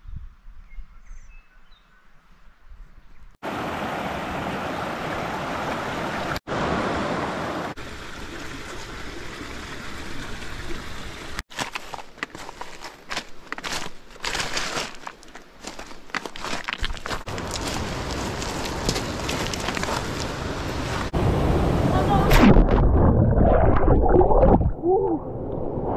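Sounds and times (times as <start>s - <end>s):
stream rushing over boulders: 3.4s - 11.4s, 16.7s - 22.0s.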